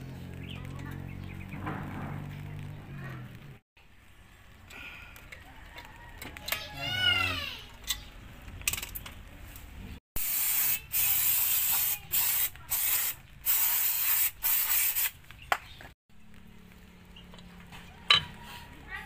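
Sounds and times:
aerosol spray hissing: 10.2s - 15.2s.

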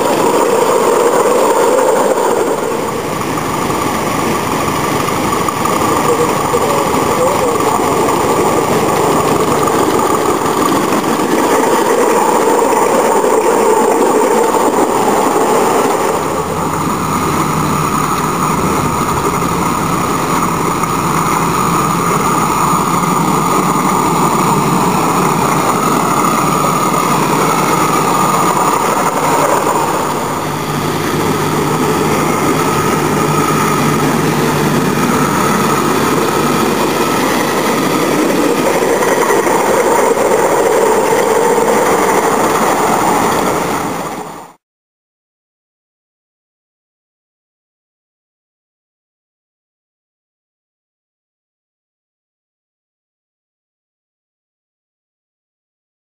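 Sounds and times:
miniature steam locomotives running: 0.0s - 44.6s.

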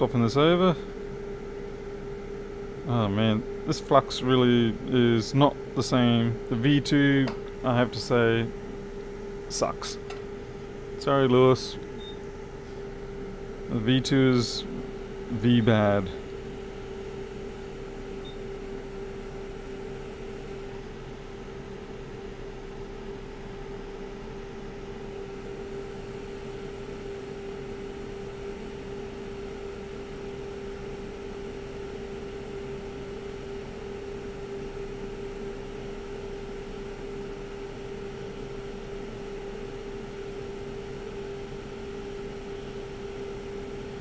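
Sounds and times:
hot-air station blowing: 0.0s - 44.0s.

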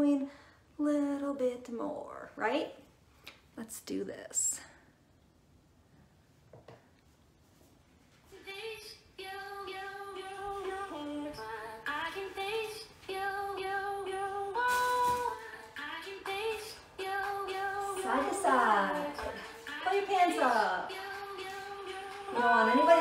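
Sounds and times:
woman singing a song: 8.3s - 23.0s.

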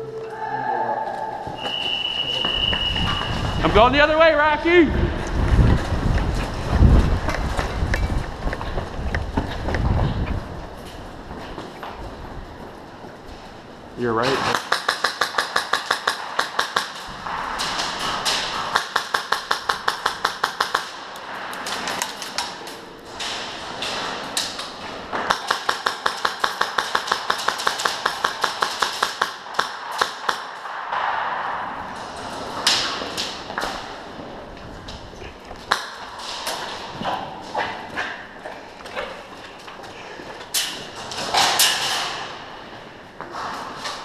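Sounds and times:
airsoft guns firing: 14.4s - 21.1s, 25.2s - 31.6s.

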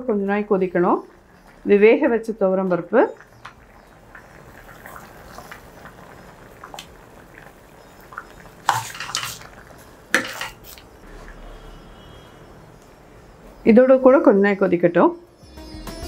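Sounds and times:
ladle scraping a steel pot: 8.6s - 10.9s.

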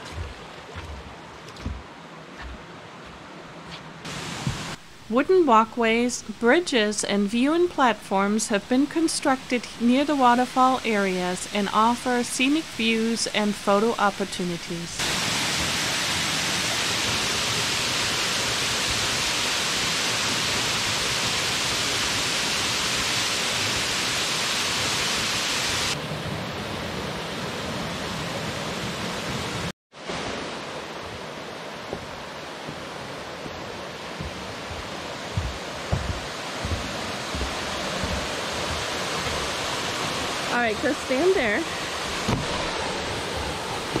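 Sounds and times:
waterfall rushing: 4.1s - 4.8s, 15.0s - 44.0s
soft low thumps: 33.4s - 39.4s.

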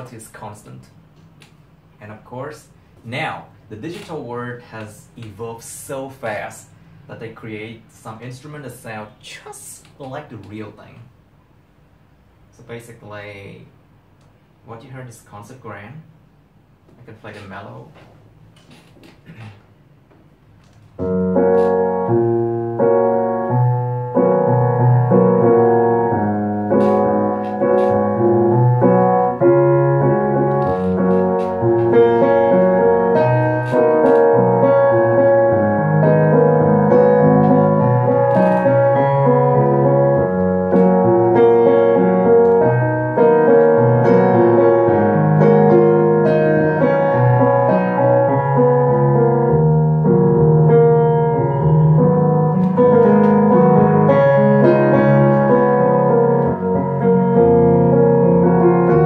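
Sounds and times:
fast piano solo: 21.0s - 59.0s.

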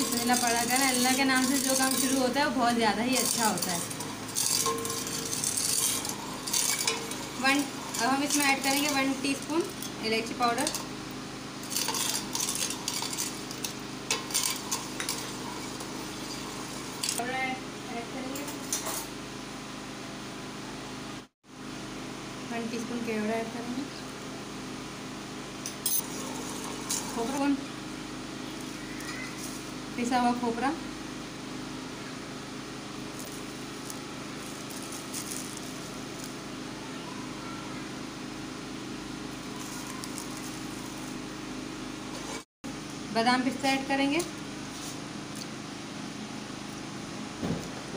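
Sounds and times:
metal spoon scraping steel pot: 0.0s - 10.9s, 11.6s - 17.2s, 25.7s - 27.6s
background hum and hiss: 0.0s - 47.9s.

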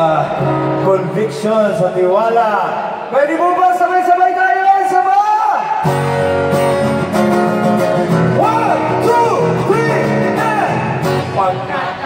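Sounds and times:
acoustic guitar strummed: 5.8s - 11.4s.

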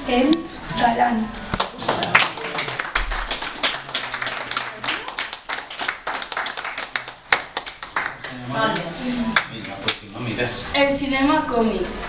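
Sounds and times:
small group applauding: 1.6s - 10.1s.

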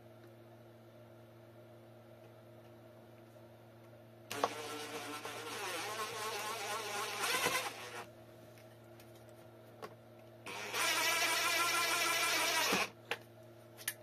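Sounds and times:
electric screwdriver whirring: 4.3s - 8.1s, 10.5s - 12.9s.

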